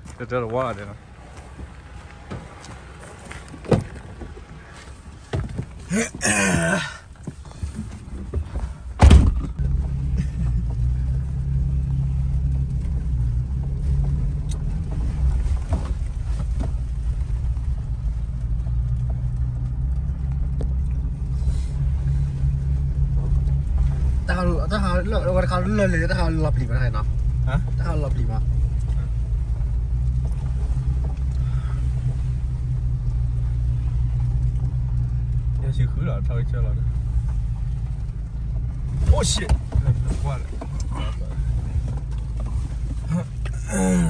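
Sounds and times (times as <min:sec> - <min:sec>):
engine rumbling inside cab: 0:00.0 - 0:44.0
car door shutting: 0:03.6 - 0:04.0, 0:09.0 - 0:09.6.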